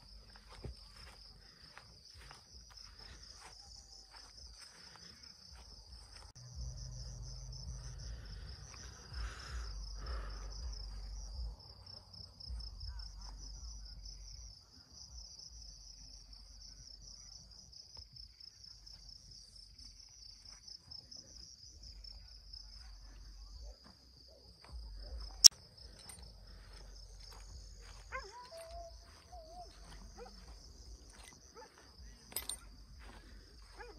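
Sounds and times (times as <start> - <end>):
insects trilling: 24.8 - 33.9.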